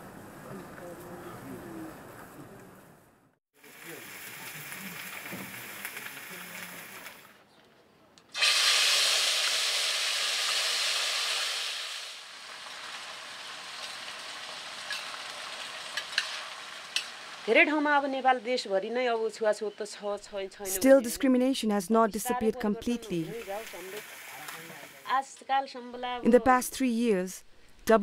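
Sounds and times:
beans sizzling in metal pan: 0:03.6 - 0:07.3, 0:08.4 - 0:18.4, 0:23.1 - 0:25.1.

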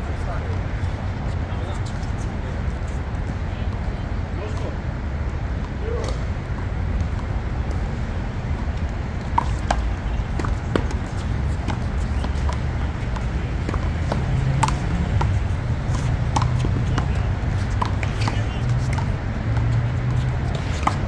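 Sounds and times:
low outdoor rumble: 0:00.0 - 0:21.0
ball smacking wall and pavement: 0:08.8 - 0:21.0.

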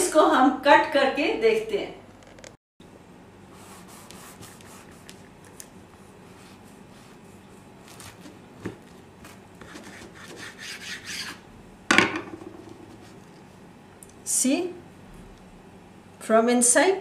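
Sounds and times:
knife sawing through bread: 0:03.6 - 0:05.1, 0:06.1 - 0:08.4, 0:09.2 - 0:11.4.

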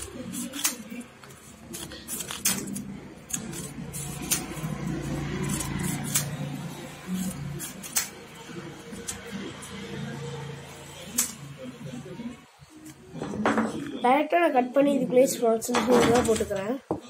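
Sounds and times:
paper rustling: 0:00.0 - 0:09.5
scissors snipping paper: 0:00.0 - 0:09.9, 0:11.0 - 0:11.4.

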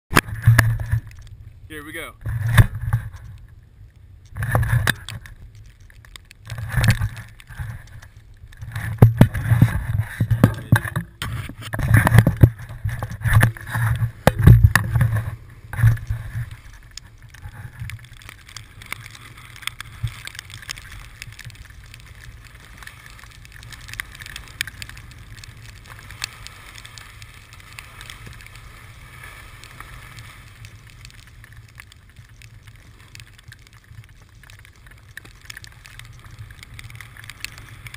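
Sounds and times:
snowboard scraping over snow: 0:18.8 - 0:33.2.

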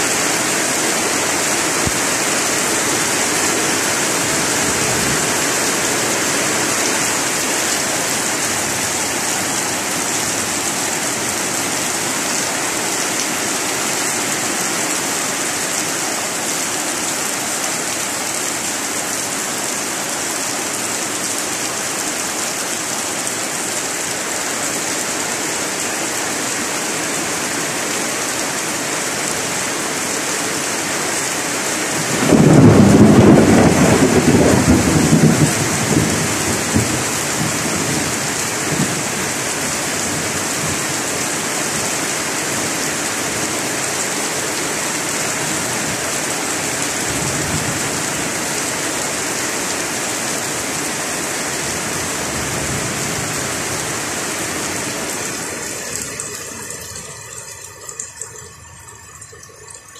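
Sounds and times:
heavy rain falling: 0:00.0 - 0:59.9
thunder rumbling: 0:32.0 - 0:39.1.

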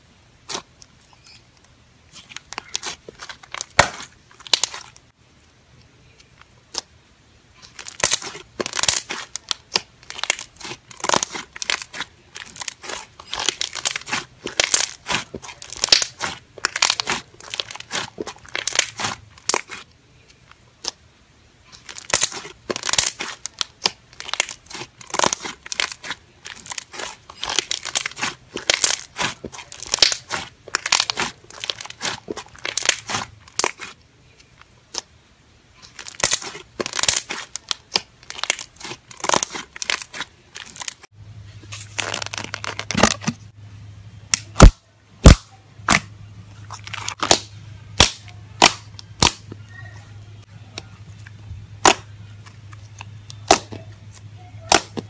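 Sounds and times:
slime crackling and popping: 0:02.2 - 0:05.0, 0:07.6 - 0:19.9, 0:21.7 - 0:34.0, 0:35.8 - 0:41.1, 0:41.7 - 0:43.4, 0:44.3 - 0:46.1, 0:46.7 - 0:49.6, 0:51.2 - 0:55.0.

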